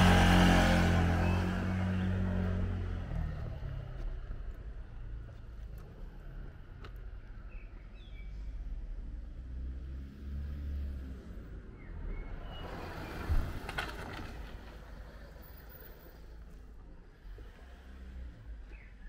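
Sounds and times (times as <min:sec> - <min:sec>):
vehicle passing: 0:00.0 - 0:03.7.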